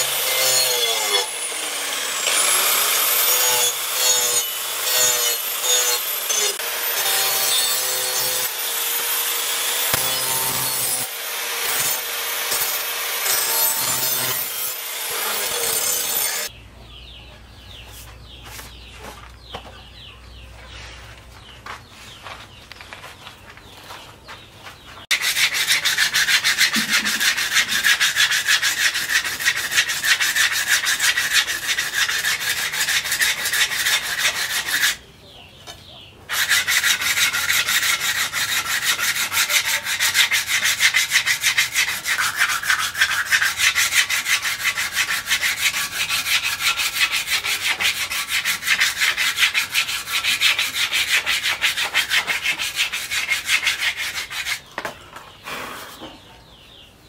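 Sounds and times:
sandpaper rubbing on wood: 25.1 - 35.0, 36.3 - 54.6.

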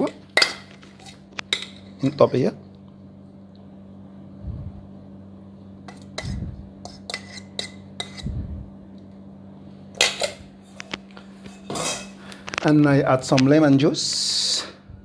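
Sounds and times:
metal utensil scraping steel bowl: 0.0 - 2.2, 5.9 - 8.3, 11.4 - 12.2
steady low hum: 0.0 - 15.0.

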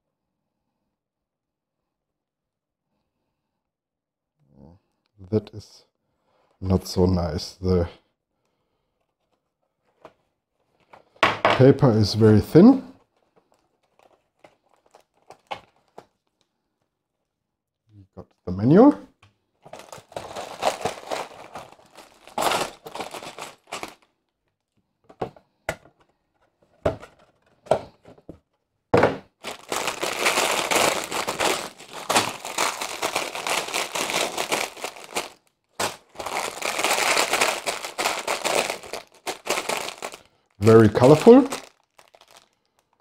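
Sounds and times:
plastic bags crinkling: 13.0 - 16.4, 19.6 - 24.1, 29.3 - 43.0.

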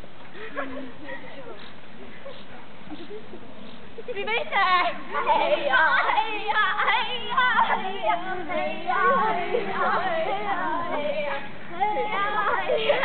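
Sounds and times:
children and woman singing: 4.2 - 13.0.

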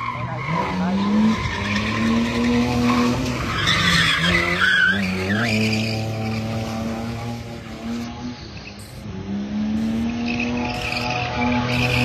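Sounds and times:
tyres squealing: 0.0 - 6.6
car engine revving high: 0.4 - 12.0.

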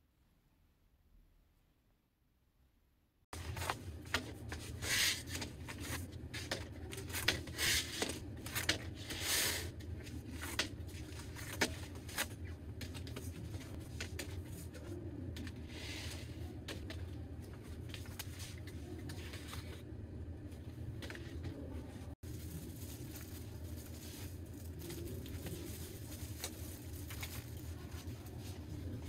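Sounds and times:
low room hum: 0.0 - 29.0
rustling: 22.0 - 29.0.

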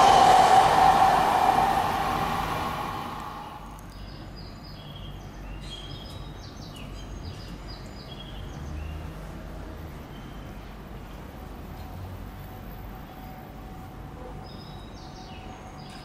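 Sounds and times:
electric train passing: 0.0 - 3.8
low rumble: 0.0 - 3.8.

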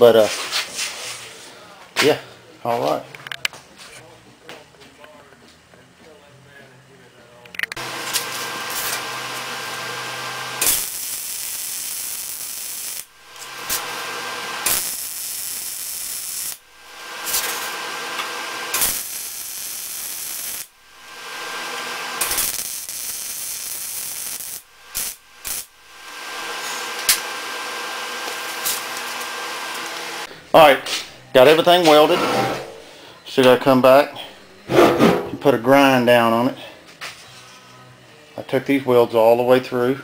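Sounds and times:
welding arc crackling and hissing: 7.8 - 30.3.

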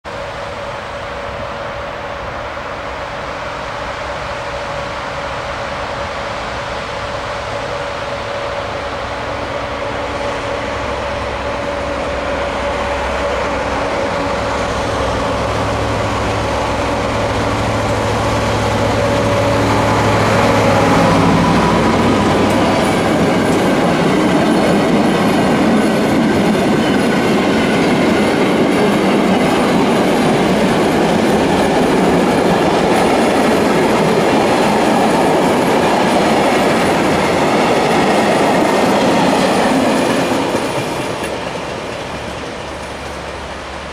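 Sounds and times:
train wheels rumbling on rails: 0.0 - 43.9
locomotive engine drone: 0.1 - 43.9.

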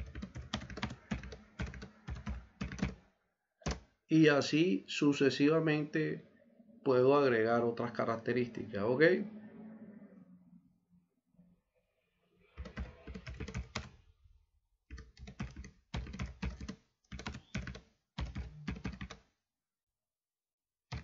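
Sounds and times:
computer keyboard typing: 0.0 - 3.0, 3.6 - 3.9, 12.6 - 14.0, 14.9 - 19.3.

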